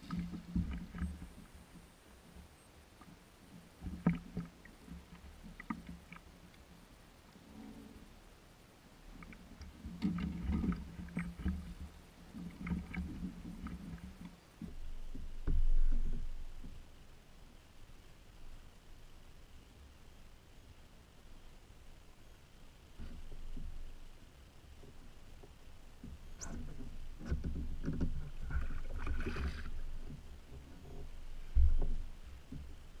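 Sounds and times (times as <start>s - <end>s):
water splashing: 28.2s - 30.2s.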